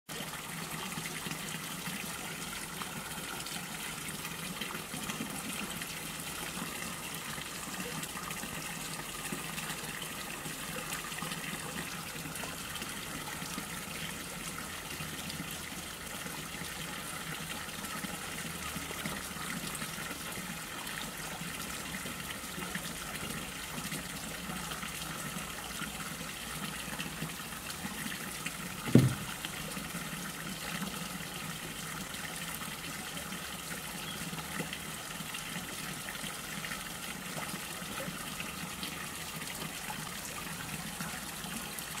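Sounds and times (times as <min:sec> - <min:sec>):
short low thump: 0:28.9 - 0:29.3.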